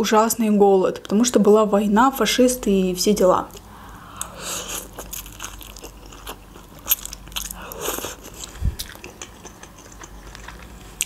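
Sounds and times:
slurping and chewing noodles: 4.2 - 11.0.

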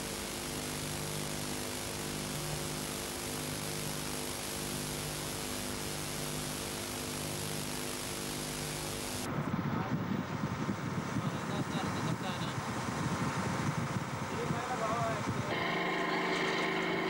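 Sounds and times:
pulsing low buzz: 0.0 - 9.3, 15.5 - 17.0
steady hiss: 0.0 - 9.3
electrical hum: 15.5 - 17.0.

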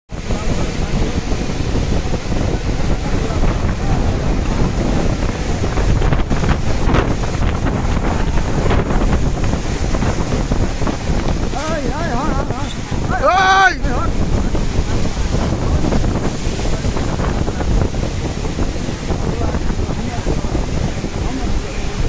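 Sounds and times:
strong wind buffeting microphone: 0.1 - 22.0.

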